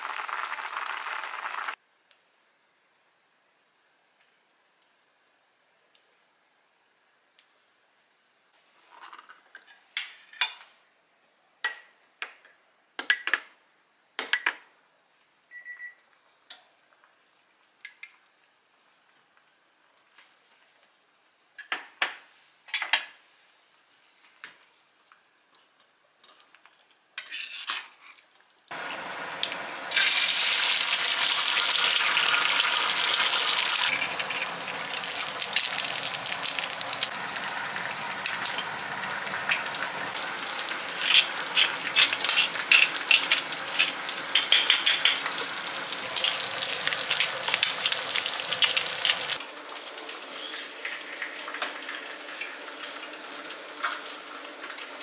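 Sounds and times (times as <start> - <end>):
eggs sizzling in oil: 0.0 - 1.8, 26.2 - 55.0.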